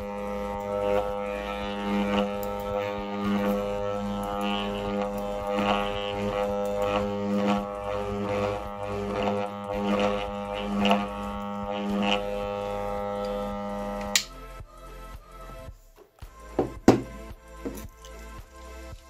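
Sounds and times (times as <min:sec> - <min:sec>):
steel strip buzzing rattling: 0:00.0 - 0:14.4
electrical growler humming: 0:00.0 - 0:15.4.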